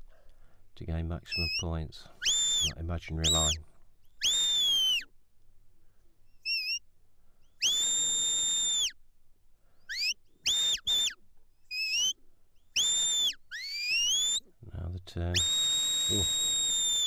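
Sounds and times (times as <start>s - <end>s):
whistle commands: 1.3s - 3.6s, 4.2s - 5.1s, 6.4s - 6.8s, 7.6s - 9.0s, 9.9s - 12.2s, 12.8s - 14.5s, 15.3s - 17.0s.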